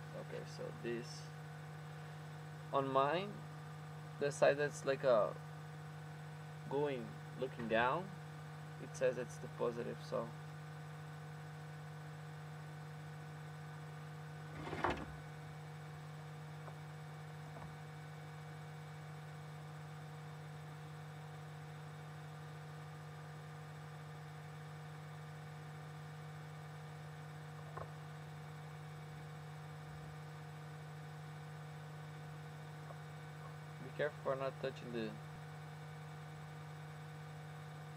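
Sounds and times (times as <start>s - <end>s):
electrical mains hum: 0.0s - 37.9s.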